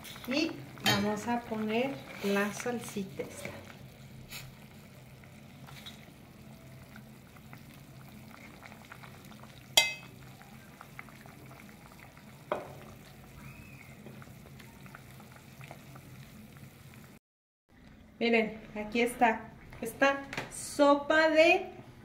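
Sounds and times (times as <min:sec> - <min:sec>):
soup simmering crackle: 0:00.0 - 0:17.2
ladle clinking on ceramic plate: 0:09.8 - 0:10.1.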